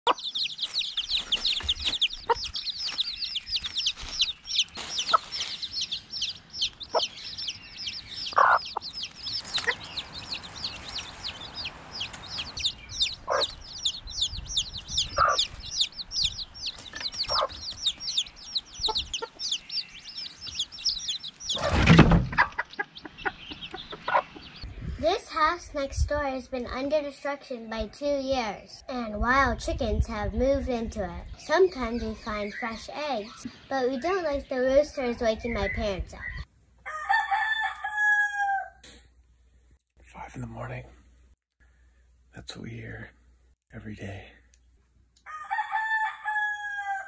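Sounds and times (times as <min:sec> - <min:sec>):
hen clucking: 0:00.1 - 0:24.7
chicks peeping: 0:00.1 - 0:24.8, 0:29.5 - 0:36.5
wooden trap door thudding shut: 0:21.6 - 0:22.4.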